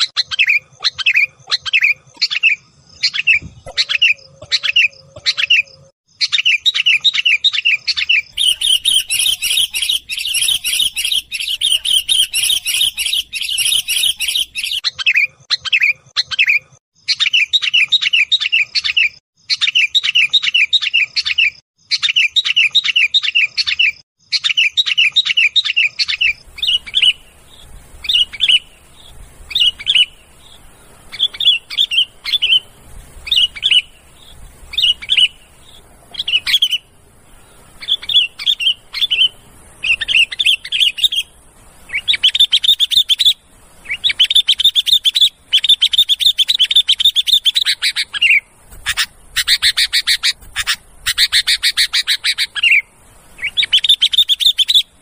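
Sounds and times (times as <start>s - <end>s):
birds chattering calls: 0.0s - 22.8s, 23.4s - 55.0s
faint hiss: 26.2s - 55.0s.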